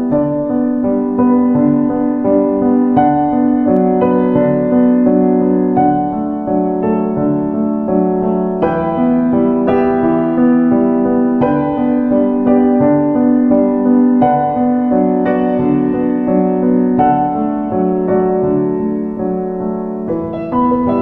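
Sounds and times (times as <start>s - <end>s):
slow piano music: 0.0s - 21.0s.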